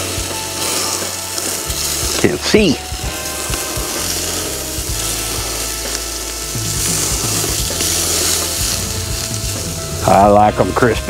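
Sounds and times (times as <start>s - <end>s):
meat sizzling on grill: 0.0s - 11.0s.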